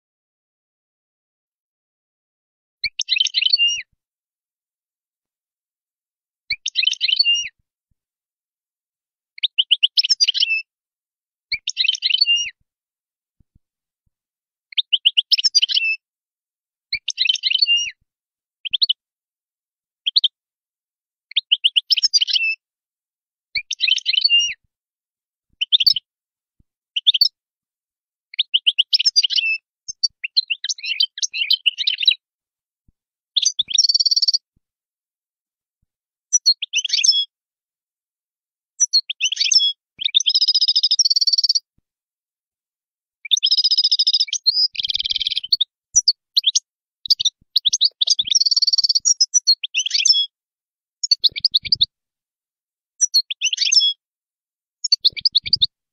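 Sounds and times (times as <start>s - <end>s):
goldfinch singing: 2.8s - 3.9s, 6.5s - 7.6s, 9.4s - 10.7s, 11.5s - 12.6s, 14.7s - 16.0s, 16.9s - 18.0s, 18.6s - 19.0s, 21.3s - 22.6s, 23.6s - 24.6s, 25.6s - 26.0s, 27.0s - 27.4s, 28.4s - 32.2s, 33.4s - 34.4s, 36.3s - 37.3s, 38.8s - 41.6s, 43.2s - 50.3s, 51.0s - 51.9s, 53.0s - 54.0s, 54.8s - 55.7s.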